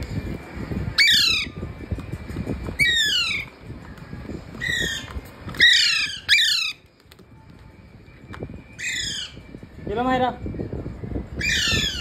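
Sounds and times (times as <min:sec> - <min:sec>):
parakeet squawking: 0:01.0 - 0:01.6, 0:02.8 - 0:03.5, 0:04.6 - 0:06.8, 0:08.8 - 0:09.5, 0:11.4 - 0:12.0.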